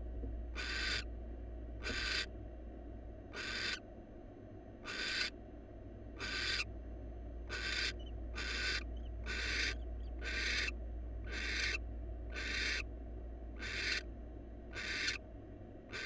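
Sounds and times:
owl hissing calls: 0:00.6 - 0:01.1, 0:01.8 - 0:02.3, 0:03.3 - 0:03.8, 0:04.8 - 0:05.3, 0:06.2 - 0:06.7, 0:07.5 - 0:12.9, 0:13.6 - 0:14.1, 0:14.7 - 0:15.2.

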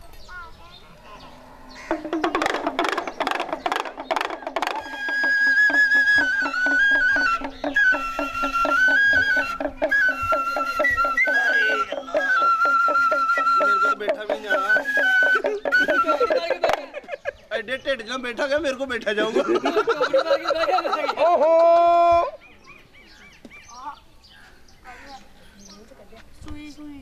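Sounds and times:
reed pipe melody: 0:01.3 - 0:17.0
drum beats: 0:01.8 - 0:17.6, 0:18.2 - 0:22.3.

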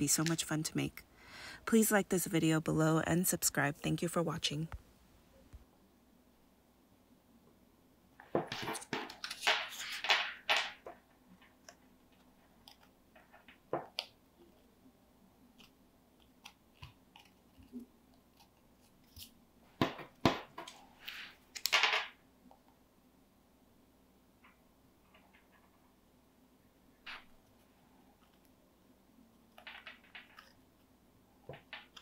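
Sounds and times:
cardstock paper rustling and crinkling: 0:08.3 - 0:11.0
small paper ticks: 0:15.6 - 0:19.3.

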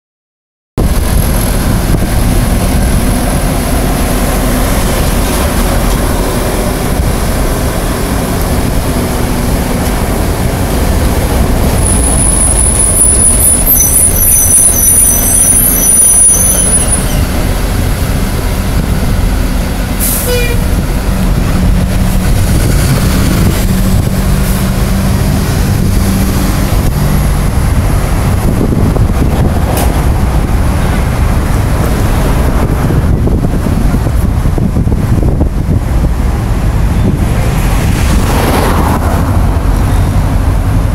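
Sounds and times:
diesel engine running: 0:00.8 - 0:40.9
traffic rumble: 0:00.8 - 0:40.9
high-pitched squeal: 0:01.2 - 0:27.7.

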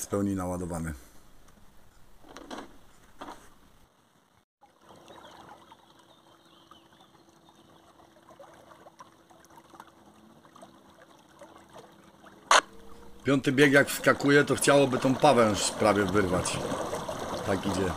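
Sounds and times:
water trickling and splashing: 0:04.3 - 0:17.9.

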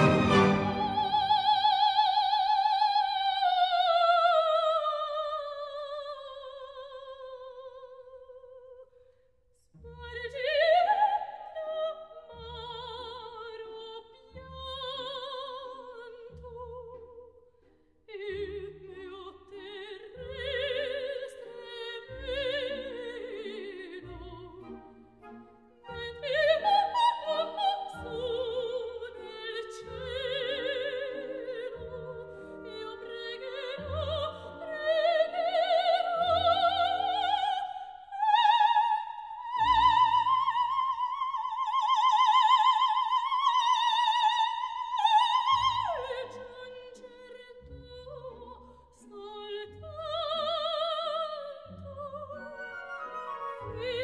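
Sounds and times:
orchestra chords: 0:00.0 - 0:01.8, 0:52.3 - 0:54.0
soprano singing: 0:00.0 - 0:08.9, 0:09.8 - 0:17.4, 0:18.1 - 0:54.0.

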